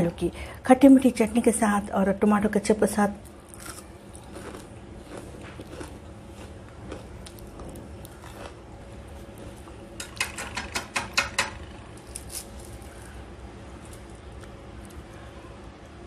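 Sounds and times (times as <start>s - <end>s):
fried snack crackling apart: 11.9s - 15.1s.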